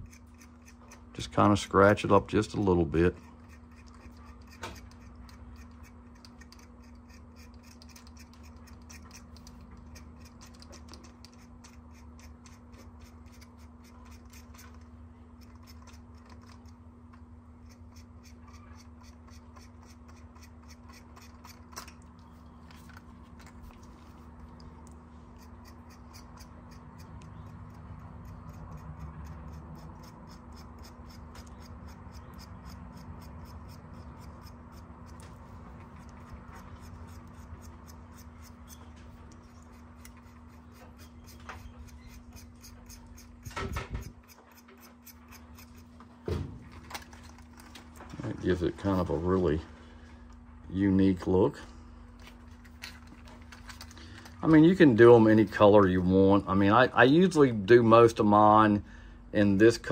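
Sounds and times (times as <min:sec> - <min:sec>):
metal tool scratching paint: 0:00.0 - 0:16.7, 0:17.6 - 0:22.0, 0:25.3 - 0:46.0
low steady hum: 0:00.0 - 0:59.9.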